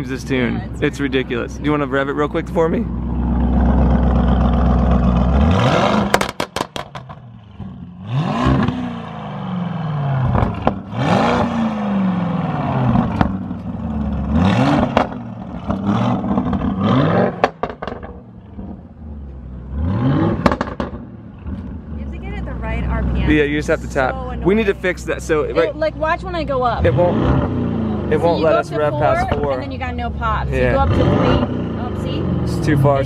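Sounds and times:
car engine idling and revving: 0.0 - 33.0
exhaust pops and crackles: 2.3 - 7.8, 10.2 - 11.6, 12.9 - 19.4, 20.3 - 24.1.

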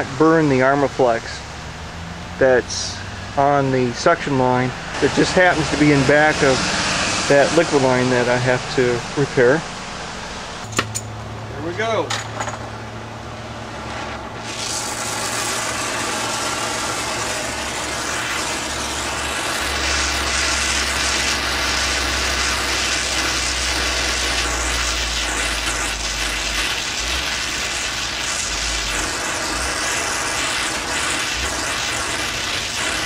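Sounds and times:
torch flame hissing: 4.9 - 9.2, 13.9 - 33.0.

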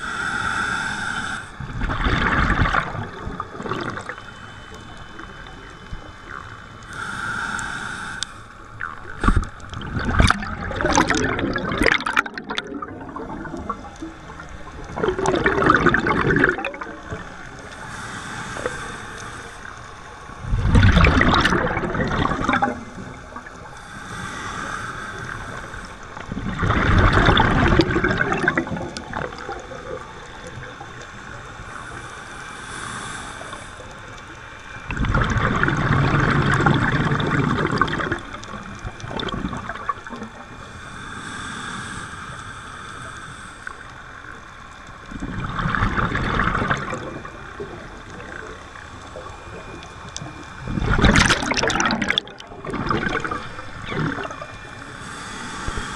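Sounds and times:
regulator inhale hiss: 0.0 - 12.0, 12.9 - 55.9
exhaled bubbles rushing: 1.6 - 6.5, 8.8 - 17.7, 20.4 - 23.7, 25.3 - 30.9, 34.8 - 40.5, 45.0 - 54.9.

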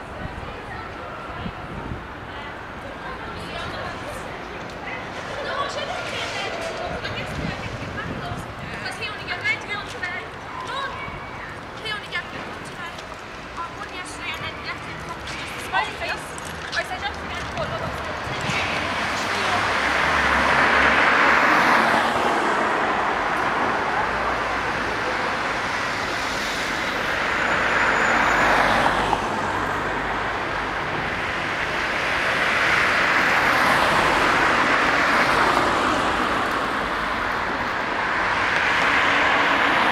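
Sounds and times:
cars passing: 0.0 - 39.9.

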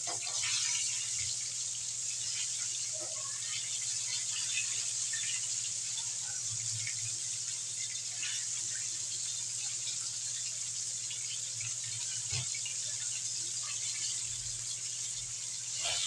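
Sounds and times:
chicken deep-frying in oil: 0.0 - 16.0.

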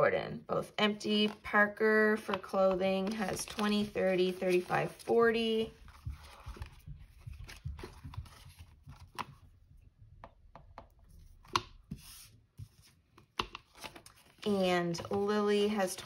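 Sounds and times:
rustling of banknotes and plastic: 2.9 - 9.2.

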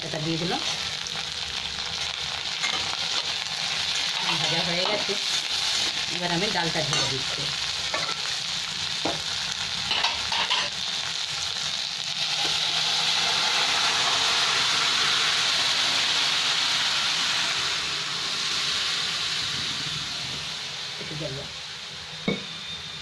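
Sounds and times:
vegetables sizzling in hot oil: 0.0 - 23.0
liquid poured into hot pan hissing: 7.8 - 23.0.

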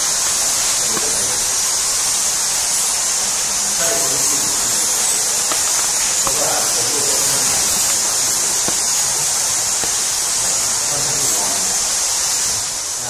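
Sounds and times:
high-pitched hiss: 0.0 - 13.0
faint voices: 3.5 - 12.0.

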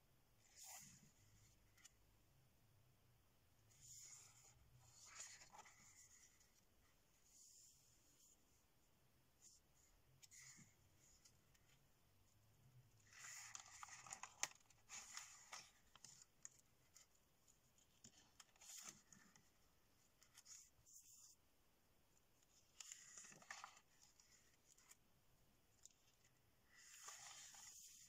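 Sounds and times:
paper rustling and crinkling: 3.8 - 6.6, 13.0 - 20.7, 22.4 - 25.0, 25.7 - 28.0.

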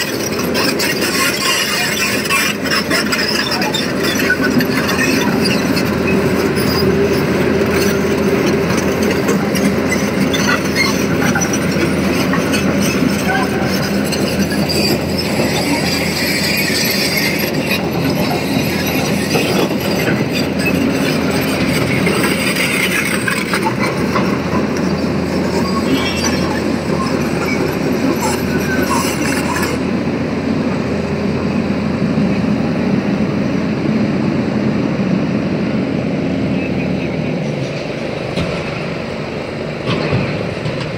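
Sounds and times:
excavator diesel engine running: 0.0 - 40.9
steel tracks rolling: 0.0 - 40.9.

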